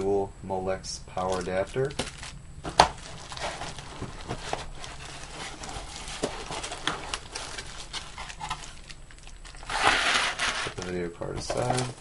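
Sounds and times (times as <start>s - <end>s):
plastic bag crinkling: 1.2s - 12.0s.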